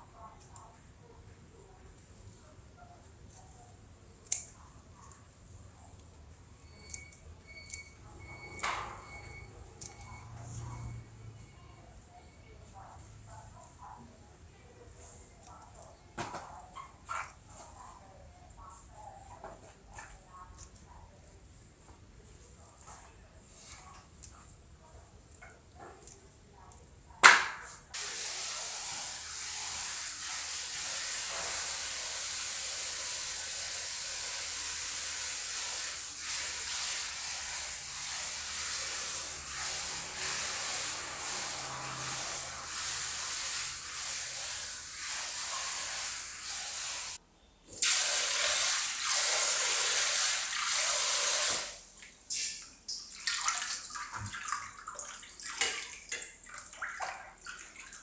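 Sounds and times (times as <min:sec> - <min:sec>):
tap water running: 0:28.0 - 0:47.2, 0:47.8 - 0:58.0
water splashing: 0:47.8 - 0:58.0.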